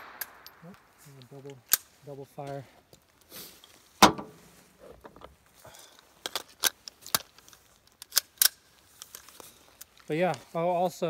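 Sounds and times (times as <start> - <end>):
sharp metallic clicks and clinks: 0.0 - 0.8.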